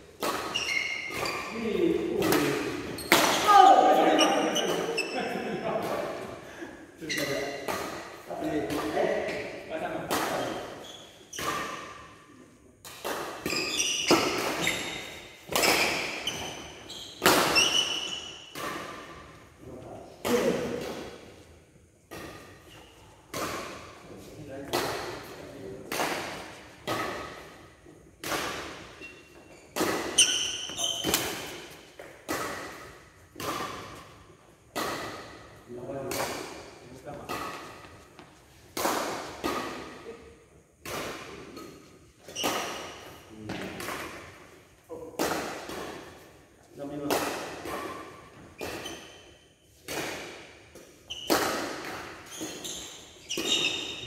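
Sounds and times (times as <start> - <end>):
rackets hitting shuttlecock: 0.0 - 54.0
short high squeak: 0.5 - 1.5.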